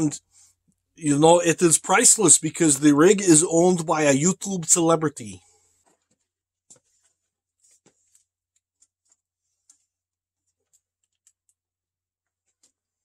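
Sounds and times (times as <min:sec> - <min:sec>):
faint clicks and taps: 0:05.8 - 0:11.6.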